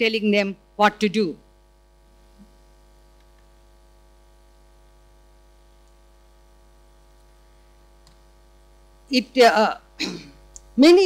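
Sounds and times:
faint electrical mains hum: 0.0s - 11.0s.

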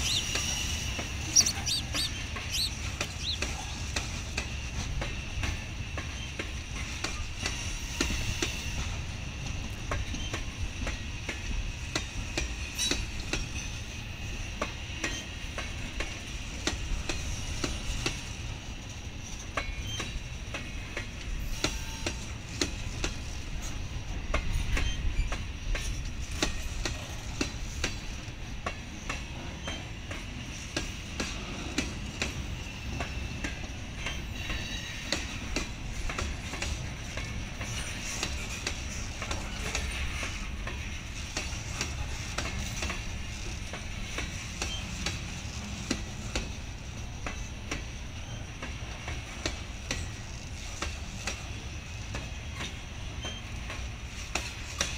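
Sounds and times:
freight train rumble: 0.0s - 54.9s
train high-pitched whine: 0.0s - 54.9s
wheels clicking over rail joints: 24.3s - 54.9s.

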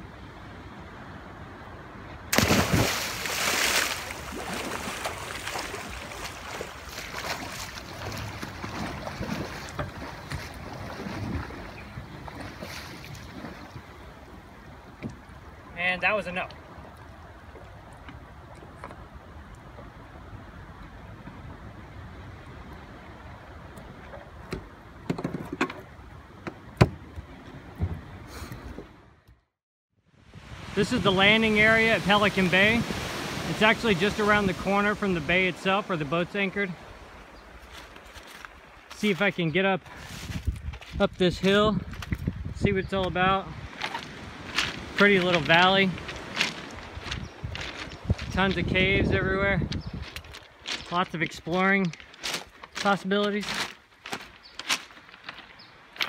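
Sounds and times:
person splashing into sea: 2.3s - 13.8s
swimming splashes: 2.3s - 13.8s
knocks and thumps on boat deck: 24.1s - 25.8s, 26.4s - 28.9s.

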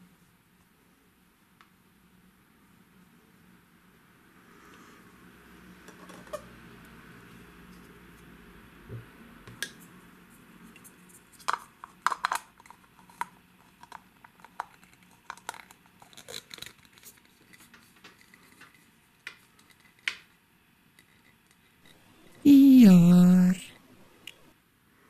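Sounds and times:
plastic pieces clicking and knocking: 11.4s - 17.2s.

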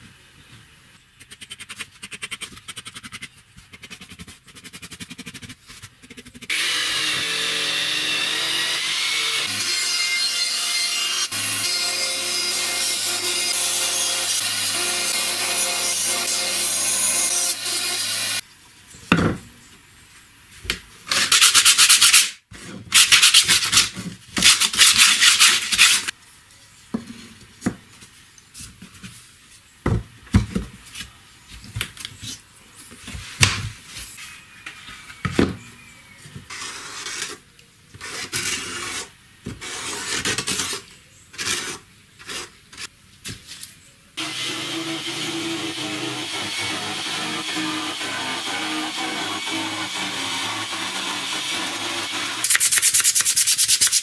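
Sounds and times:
band saw cutting plywood: 6.5s - 18.4s, 44.2s - 53.4s.

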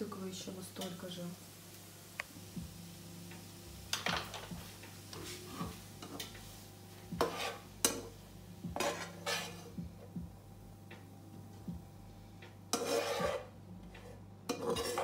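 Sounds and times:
spoon scraping a cooking pot: 7.2s - 8.1s, 8.8s - 9.8s, 12.7s - 15.0s.

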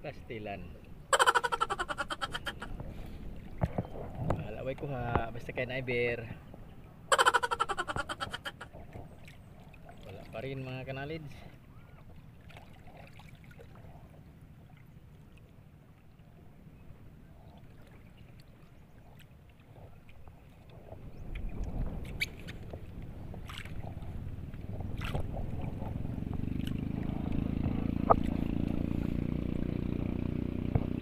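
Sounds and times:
faint wind: 0.0s - 31.0s
water around a boat: 0.0s - 31.0s
boat motor droning: 22.9s - 31.0s.

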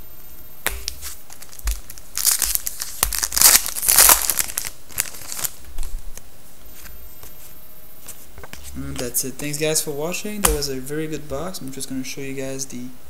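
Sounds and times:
foil wrapper tearing and crinkling: 0.8s - 6.0s.

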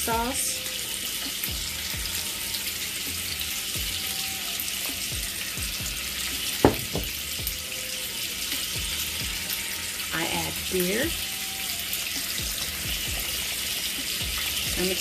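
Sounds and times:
sausage sizzling in oil: 0.0s - 15.0s
sharp knock: 6.6s - 7.1s.

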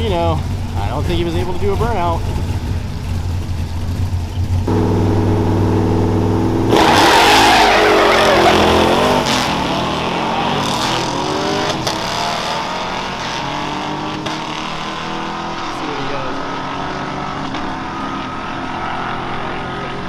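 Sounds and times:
car engine revving and accelerating: 4.6s - 20.0s.

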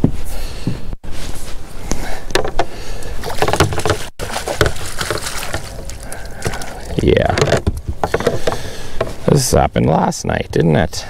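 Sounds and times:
water splashing: 3.2s - 9.0s.

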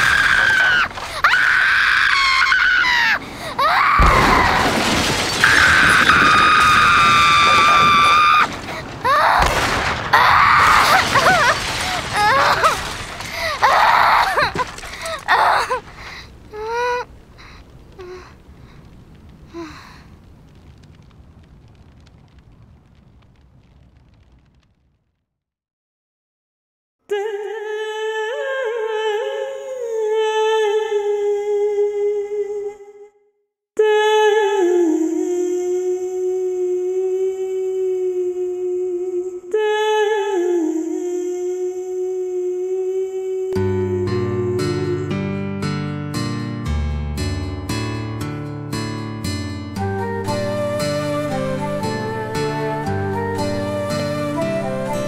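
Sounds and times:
high held scream: 0.0s - 4.8s, 5.4s - 9.5s, 10.1s - 12.8s
person humming long notes: 40.7s - 45.5s, 49.9s - 55.0s.

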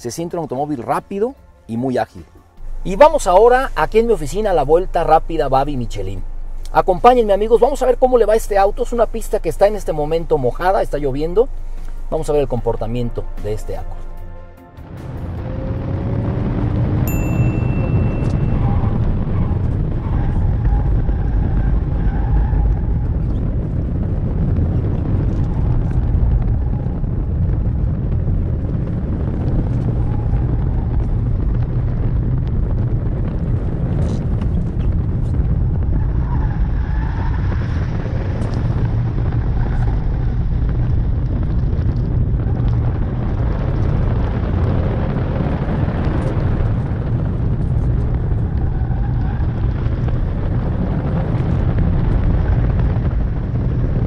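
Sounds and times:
car engine note: 0.0s - 23.4s
road and tyre noise: 0.0s - 54.0s.

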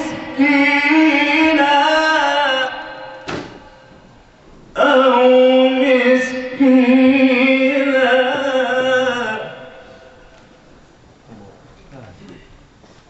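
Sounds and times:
man chanting melodic recitation: 0.0s - 3.9s, 4.8s - 10.3s.

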